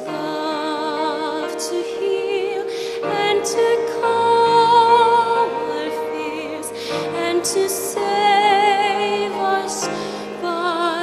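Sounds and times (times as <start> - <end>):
mixed choir singing: 1.4 - 11.0
orchestral accompaniment: 2.7 - 9.4.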